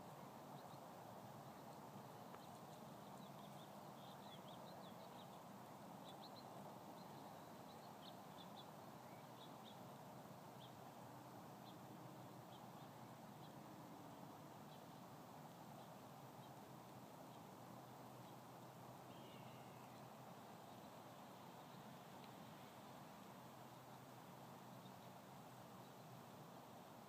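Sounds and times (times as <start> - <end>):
faint outdoor hiss: 0.0 - 27.0
faint high-pitched ticks: 1.6 - 5.4, 19.1 - 24.0.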